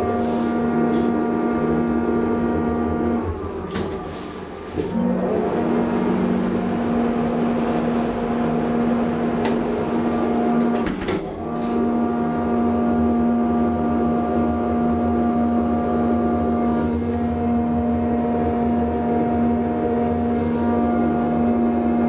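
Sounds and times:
hydraulic drive rumble: 0:00.0 - 0:13.4
elevator hum: 0:00.0 - 0:22.0.

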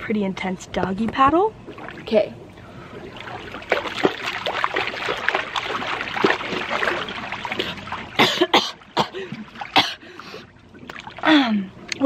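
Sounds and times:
water splashing and churning: 0:01.6 - 0:12.0
person coughing: 0:08.2 - 0:10.0.

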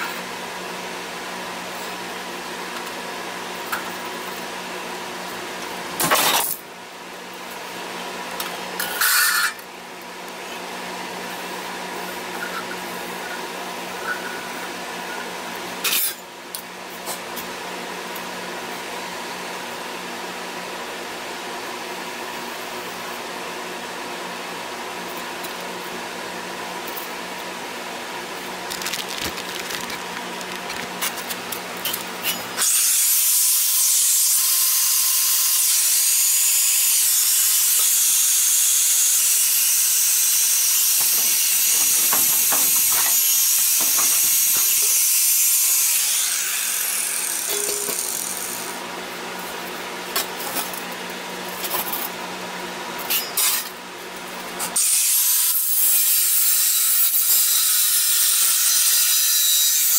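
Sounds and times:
shop fan hum: 0:00.0 - 0:59.9
metal scraping rasps: 0:28.7 - 0:32.7.

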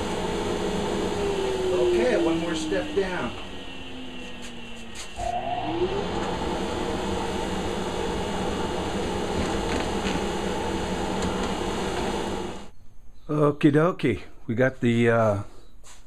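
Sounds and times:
dust extraction vacuum running: 0:00.0 - 0:12.7.

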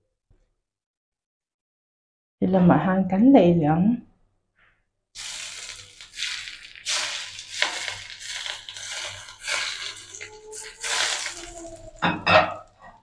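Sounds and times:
pork sizzling in frying pan: 0:05.2 - 0:12.2.

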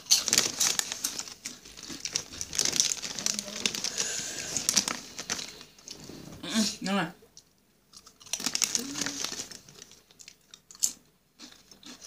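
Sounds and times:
chip bag crinkling: 0:00.0 - 0:06.1, 0:07.9 - 0:12.0.

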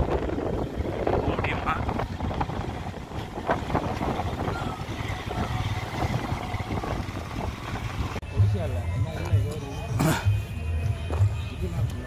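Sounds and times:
wind noise on microphone: 0:00.0 - 0:08.2
motorcycle engine running: 0:00.0 - 0:08.5.

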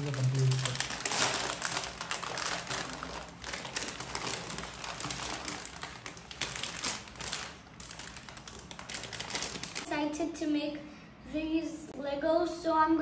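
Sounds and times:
plastic bags crinkling: 0:00.0 - 0:09.9.

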